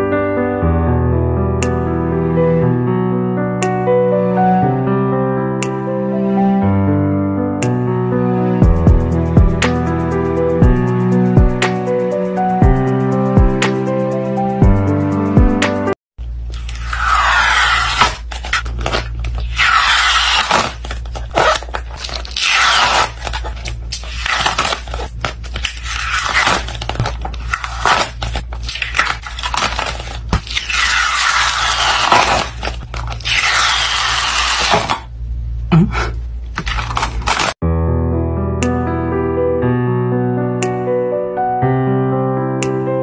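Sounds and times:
film crackling as peeled off: 16.5 - 35.0, 36.6 - 37.6
steady low hum: 35.0 - 36.6.

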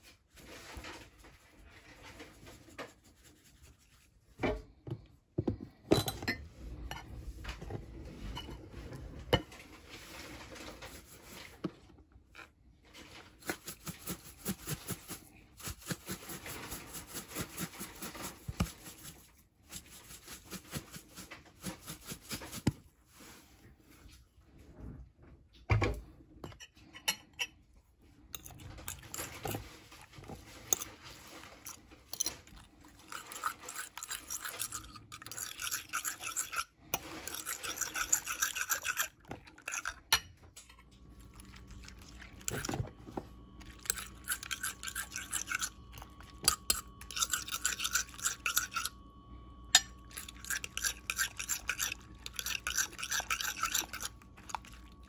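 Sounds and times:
faint steady hum: 1.8 - 55.0
fork beating eggs in glass bowl: 13.4 - 22.8, 28.3 - 40.3, 41.2 - 49.0, 49.7 - 55.0.

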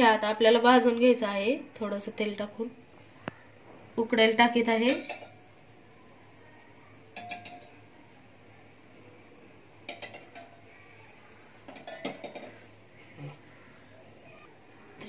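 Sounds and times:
eggs clinking in metal pot: 4.4 - 5.5, 7.1 - 7.9, 9.8 - 10.8, 11.5 - 12.8.

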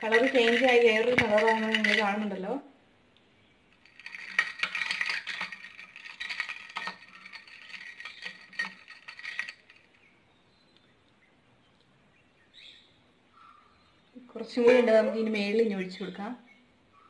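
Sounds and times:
spoon stirring ice in glass: 0.0 - 2.4, 3.8 - 10.0.

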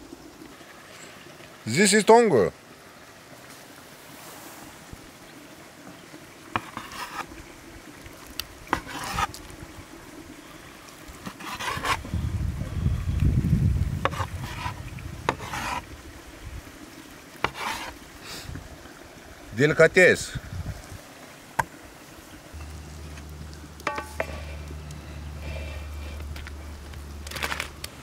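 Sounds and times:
knife rasping and scraping: 6.6 - 7.3, 8.7 - 9.4, 11.2 - 12.1, 14.0 - 15.9, 17.4 - 18.0, 23.9 - 24.7.

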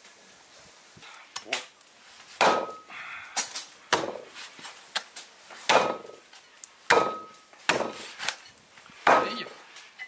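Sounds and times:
cleaver chopping meat on board: 6.9 - 8.0.

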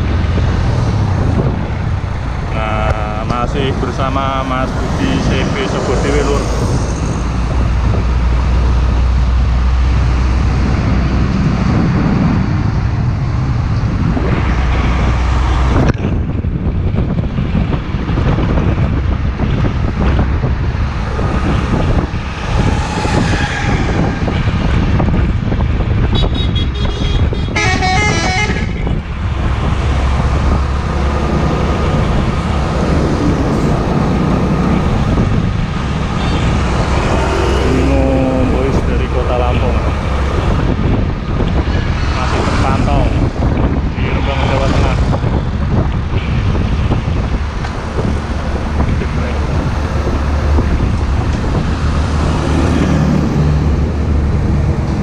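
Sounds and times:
heavy trucks passing on highway: 0.0 - 55.0
loud multi-tone truck horn: 26.1 - 29.0.

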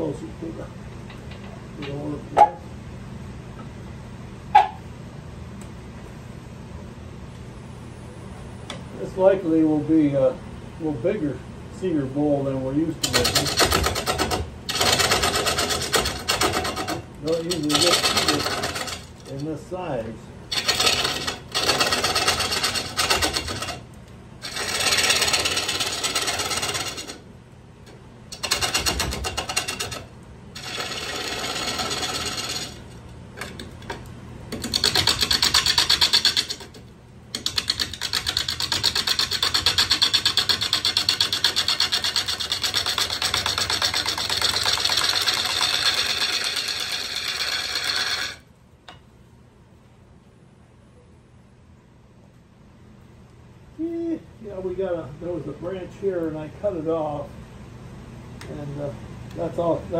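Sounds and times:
lathe running hum: 11.0 - 27.3, 28.2 - 48.5
gouge cutting spinning wood: 13.0 - 19.5, 20.5 - 23.8, 24.4 - 27.2, 28.3 - 33.6, 34.6 - 48.4.

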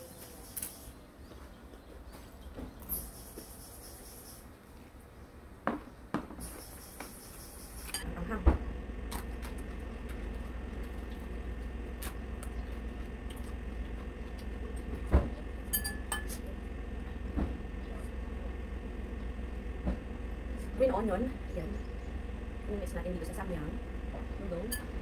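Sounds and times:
low steady hum: 6.5 - 25.0.

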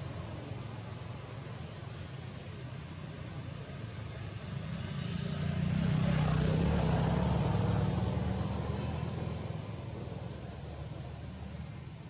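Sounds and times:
vehicle engine passing by: 4.2 - 11.8.

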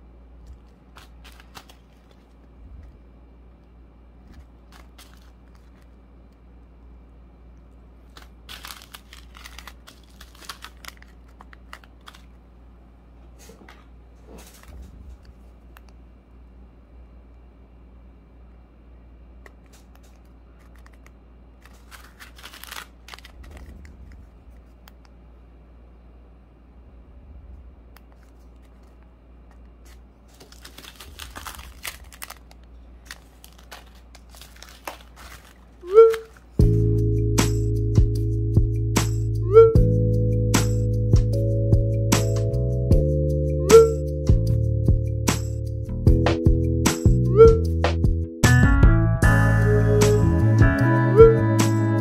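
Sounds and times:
steady low hum: 0.0 - 52.0
plastic packaging clicks: 0.4 - 2.5, 4.3 - 6.0, 8.0 - 12.4, 19.4 - 23.9, 28.0 - 36.5
plastic packaging crinkling: 0.4 - 3.0, 4.2 - 6.1, 8.0 - 12.5, 19.7 - 24.8, 28.0 - 36.6.

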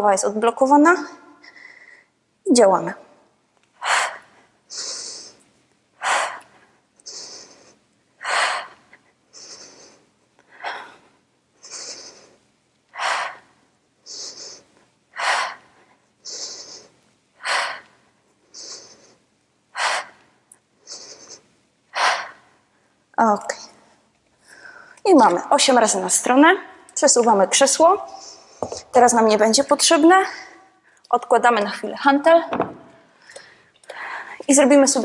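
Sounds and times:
woman breathing hard: 1.4 - 2.2, 3.8 - 23.0, 24.4 - 25.0, 28.0 - 28.9, 33.1 - 34.5.

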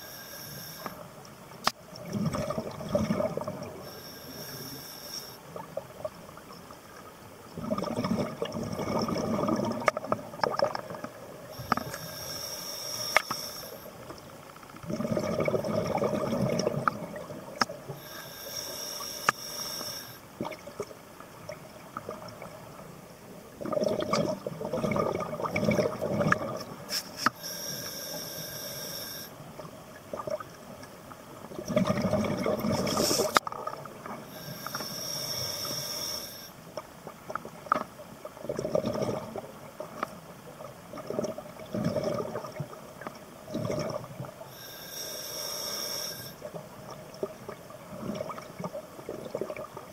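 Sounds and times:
regulator hiss on inhale: 0.0 - 1.2, 3.8 - 5.5, 11.5 - 14.1, 17.9 - 20.3, 26.9 - 29.4, 32.9 - 33.4, 34.3 - 36.7, 44.5 - 46.5
exhaled bubbles rumbling: 1.9 - 3.9, 7.4 - 12.0, 14.8 - 17.9, 23.5 - 26.9, 29.5 - 34.3, 38.3 - 44.5, 46.4 - 49.9.

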